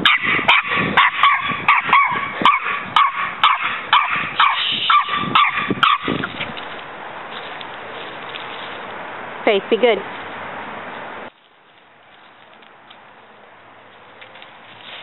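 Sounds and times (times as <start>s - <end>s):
small dog yapping: 0.0s - 6.4s.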